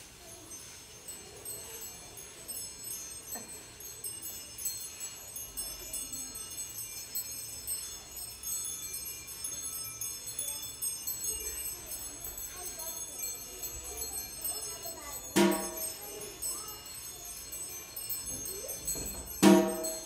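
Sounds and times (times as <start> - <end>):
small metal bells jingling: 0.0 - 20.0.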